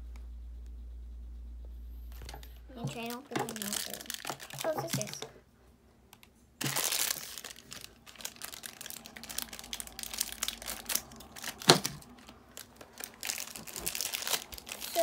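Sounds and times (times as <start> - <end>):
plastic wrapper crackling: 2.8 - 5.4, 6.1 - 15.0
scissors cutting plastic: 6.6 - 15.0.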